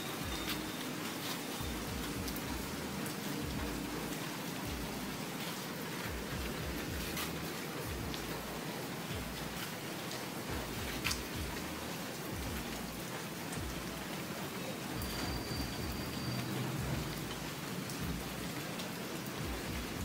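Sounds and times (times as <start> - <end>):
steady rain: 0.0 - 20.0
louder drips: 14.6 - 18.5.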